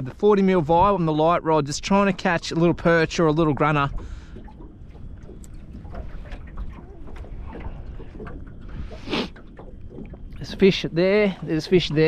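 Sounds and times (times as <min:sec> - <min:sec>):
wind buffeting microphone: 0:00.0 - 0:12.0
faint ticks: 0:03.8 - 0:10.5.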